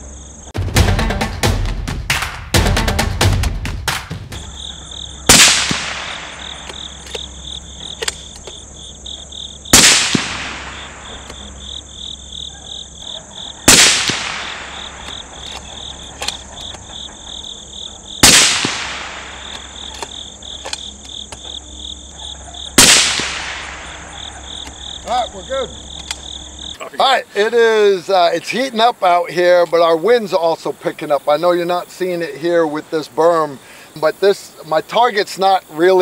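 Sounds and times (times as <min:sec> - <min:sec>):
suppressed rifle shots: 0:05.3 - 0:08.5, 0:09.7 - 0:11.5, 0:13.6 - 0:17.2, 0:18.2 - 0:21.5, 0:22.8 - 0:24.9.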